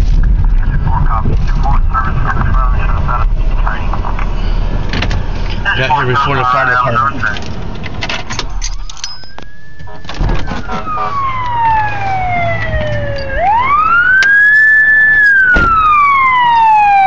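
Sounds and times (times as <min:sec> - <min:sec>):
fire engine siren wailing: 0:08.6 - 0:17.0.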